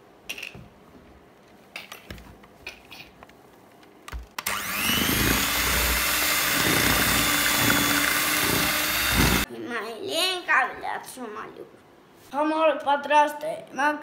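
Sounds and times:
electric hand mixer whirring: 4.4 - 9.5.

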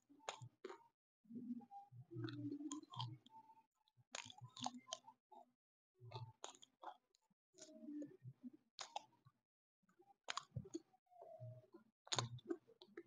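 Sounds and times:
wet mouth clicks: 12.1 - 12.6.

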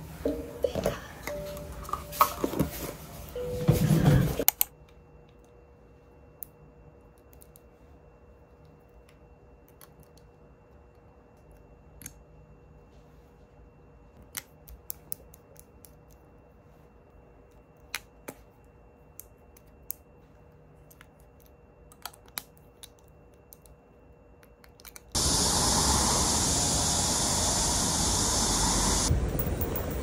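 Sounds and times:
rain falling: 25.2 - 30.0.

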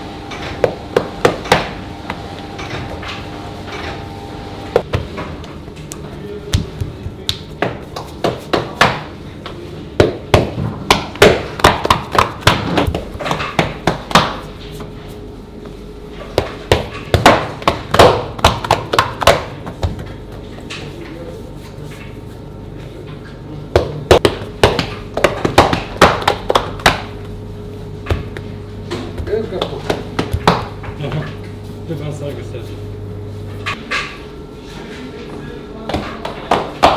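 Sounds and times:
steady low hum: 0.0 - 36.9
hands slapping dough on counter: 10.0 - 14.5, 16.4 - 20.1, 23.8 - 27.2.

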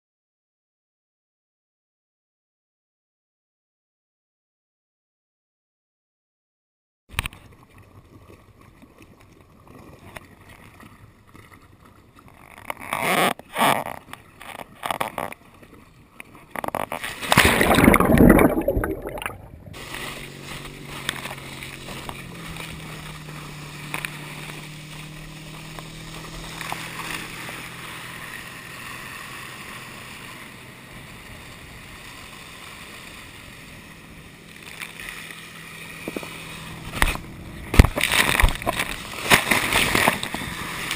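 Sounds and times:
rush of water: 7.1 - 40.9
water splashes and knocks: 16.5 - 28.1, 36.0 - 40.9
boat engine running: 17.9 - 40.9
ski hissing through water: 19.8 - 34.1.

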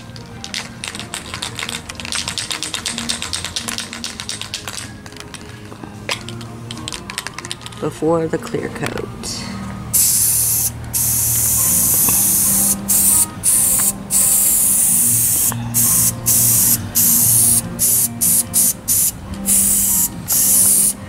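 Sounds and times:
aerosol can spraying: 0.4 - 4.8, 9.9 - 21.0.

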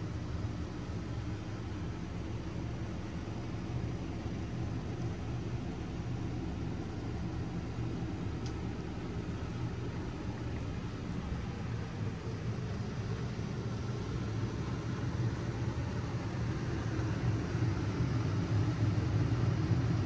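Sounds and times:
low rumbling background noise: 0.0 - 20.0
faint click: 8.4 - 8.6.

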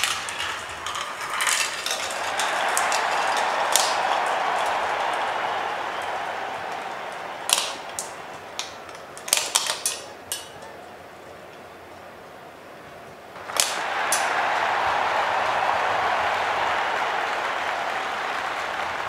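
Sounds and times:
glass marbles clicking: 0.0 - 5.3
crowd noise: 0.0 - 19.0.

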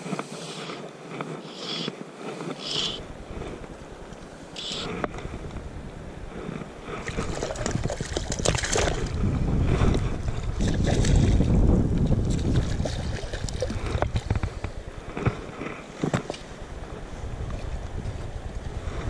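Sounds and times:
wind on microphone: 0.0 - 19.0
low rumble of moving water: 2.0 - 19.0
water splashing around fish: 7.0 - 9.2, 12.3 - 14.6.

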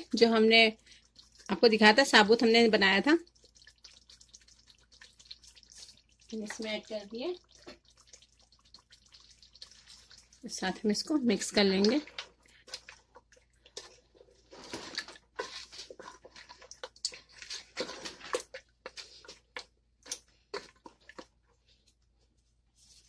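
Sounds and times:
wet squelching: 0.0 - 21.4
spoon scraping a pot: 13.7 - 19.4.

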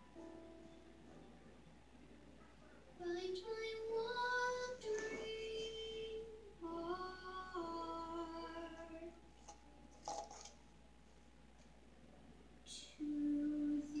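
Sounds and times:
girl singing over speakers: 3.0 - 9.2, 12.7 - 14.0.

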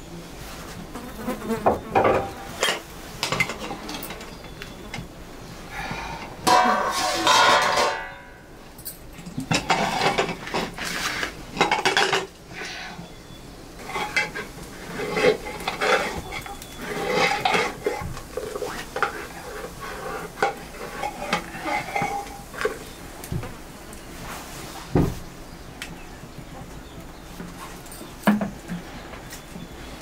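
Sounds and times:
metal ladle scraping a metal pot: 13.8 - 22.5.

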